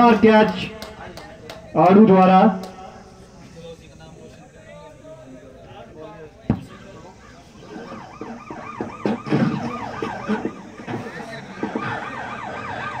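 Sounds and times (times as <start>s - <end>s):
siren yelping: 6.6s - 13.0s.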